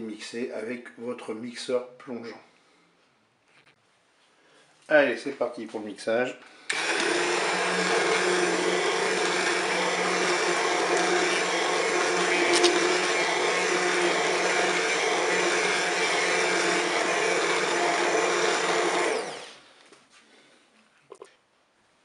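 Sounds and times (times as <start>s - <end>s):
immersion blender running: 6.7s - 19.6s.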